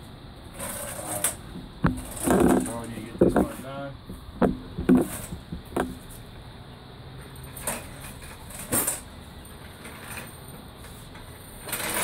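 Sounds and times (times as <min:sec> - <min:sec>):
metal knocks: 0:01.5 - 0:06.2.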